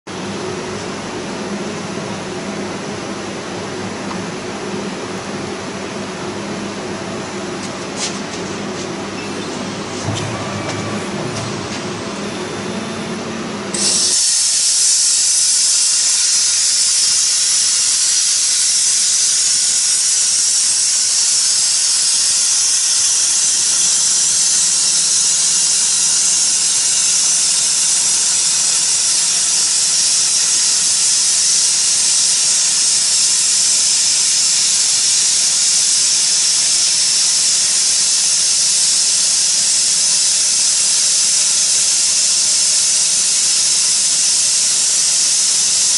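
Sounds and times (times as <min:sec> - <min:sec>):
low mechanical hum: 0:00.1 - 0:45.9
plasma cutter arc hissing: 0:13.5 - 0:45.9.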